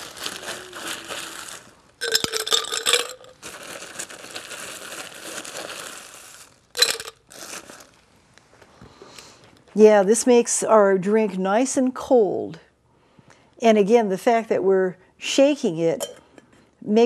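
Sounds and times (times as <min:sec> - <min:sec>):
ice cubes clattering: 0:00.0 - 0:07.9.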